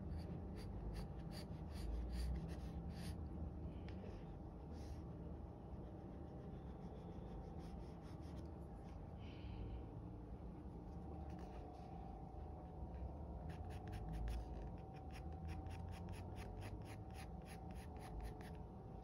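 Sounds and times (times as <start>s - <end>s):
pencil scratching on paper: 0.0s - 3.2s, 5.7s - 8.5s, 13.5s - 18.6s
pencil shading strokes: 0.0s - 3.2s, 5.7s - 9.0s, 13.5s - 18.6s.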